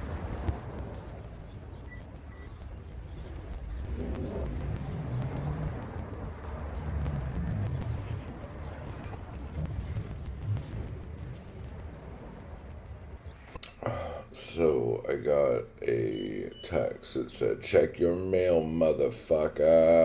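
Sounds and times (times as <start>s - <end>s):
rumble of passing cars: 0.0s - 13.6s.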